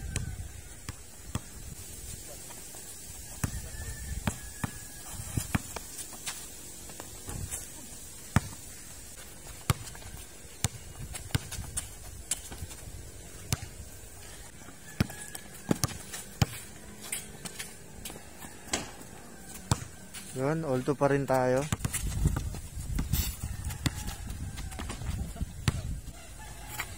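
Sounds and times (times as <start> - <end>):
basketball bouncing on concrete: 0.1 - 1.5, 3.4 - 7.6, 8.2 - 8.6, 9.4 - 13.8, 14.9 - 20.0, 21.5 - 26.9
ball hitting backboard and rim: 15.0 - 16.6, 18.7 - 19.0, 19.7 - 19.9.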